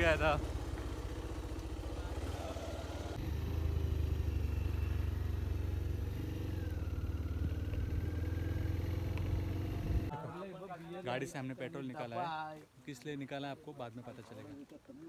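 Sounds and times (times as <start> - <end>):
motorcycle engine running: 0.0 - 10.1.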